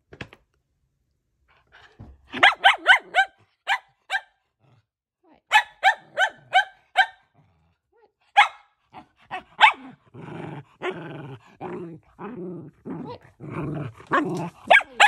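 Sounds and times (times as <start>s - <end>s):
dog barking: 2.3s - 4.4s, 5.5s - 7.4s, 8.3s - 10.0s, 14.1s - 15.0s.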